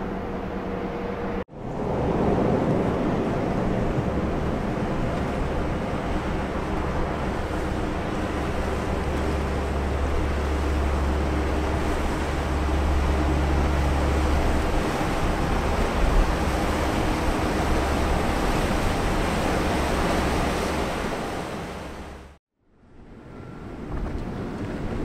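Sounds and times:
wind noise: 0.0 - 22.3, 22.9 - 25.0
ship machinery low hum: 0.0 - 25.0
water wash: 1.3 - 22.4.

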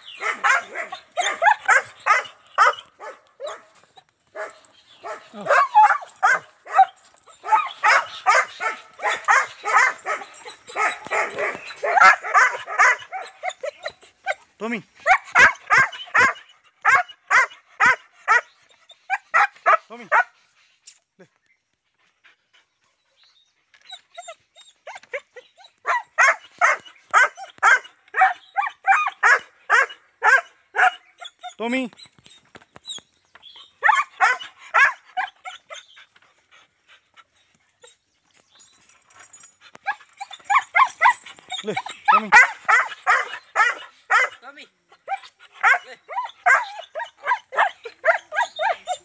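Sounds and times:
dog barking: 0.2 - 3.7, 4.4 - 13.8, 15.0 - 18.5, 25.8 - 31.0, 33.8 - 35.2, 40.5 - 44.4, 45.0 - 49.0.

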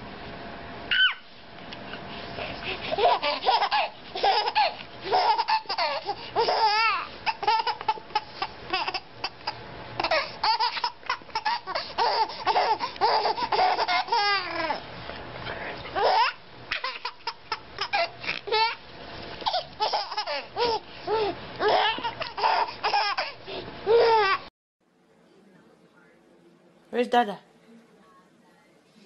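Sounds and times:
baby laughing: 0.9 - 1.2, 2.7 - 14.8, 15.9 - 18.8, 19.4 - 24.5
baby squealing: 0.9 - 1.3, 2.9 - 14.8, 16.0 - 18.8, 19.4 - 24.4.

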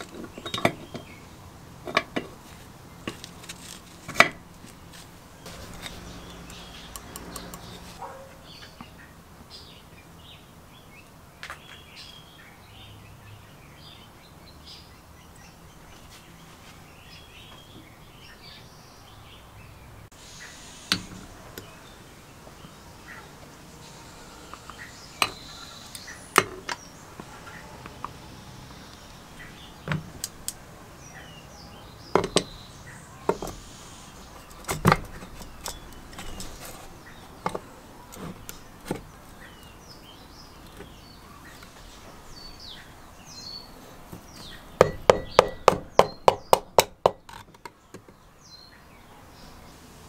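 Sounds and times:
birds chirping faintly: 0.0 - 50.0.

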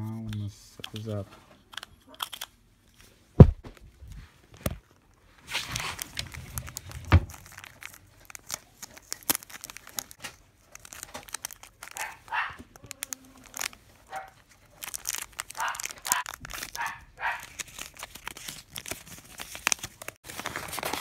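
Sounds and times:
loud bump: 3.4 - 3.7
plastic bag crinkling: 5.4 - 21.0.

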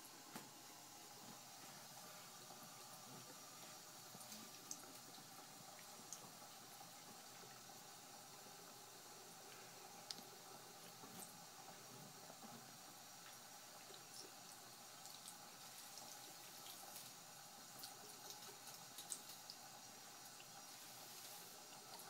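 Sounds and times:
water splashes and drips: 2.9 - 7.7, 13.2 - 22.0.

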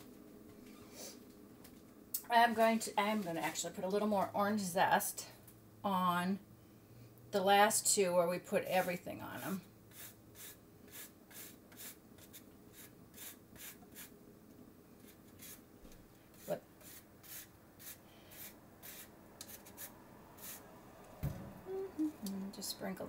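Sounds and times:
grater scraping orange peel: 9.9 - 14.1, 16.3 - 20.6.

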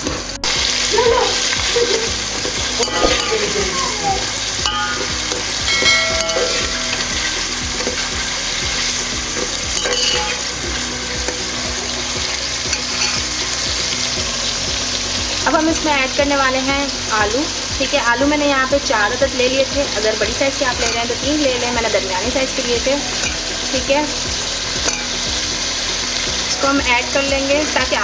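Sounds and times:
prawns sizzling in oil: 0.0 - 28.0
metal spoon knocking pot: 2.8 - 3.6, 4.6 - 8.1, 9.7 - 10.4.

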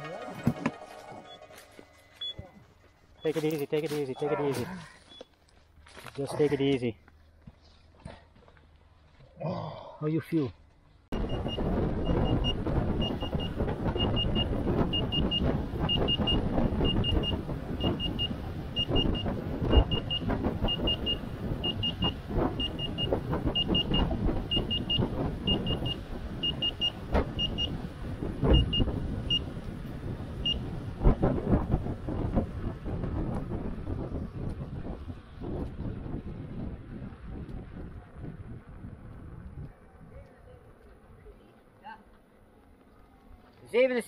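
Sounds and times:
wind: 0.0 - 44.0
short high alarm beeps: 1.1 - 4.3, 11.2 - 27.8.

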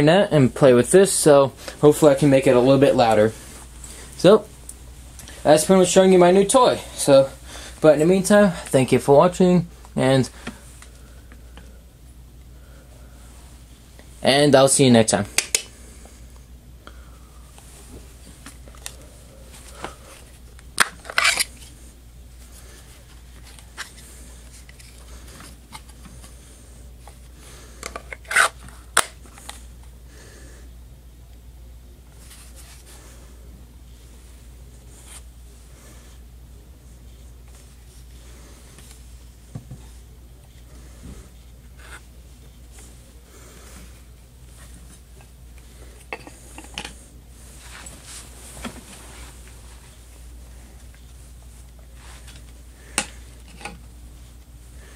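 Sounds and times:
steady low hum: 0.0 - 54.9
plastic rubbing against skin: 19.6 - 21.8.

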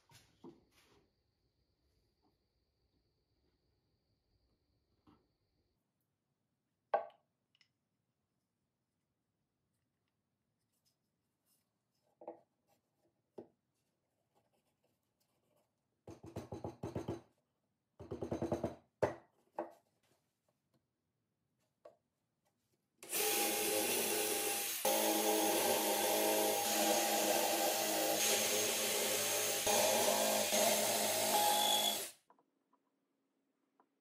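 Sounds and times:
cordless drill boring into wood: 23.0 - 32.2.

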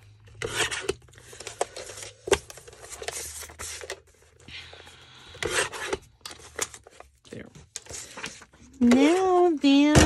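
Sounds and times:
paper rustling and scraping: 0.4 - 4.3, 7.8 - 9.6.

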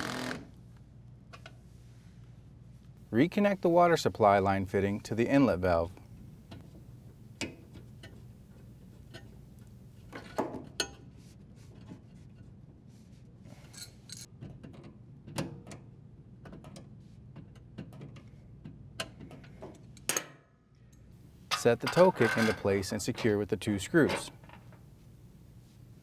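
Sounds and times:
low steady hum: 0.4 - 14.5.

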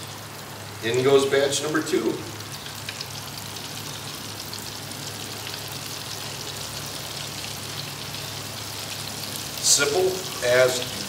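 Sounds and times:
oil sizzling deep-frying: 0.0 - 11.0.

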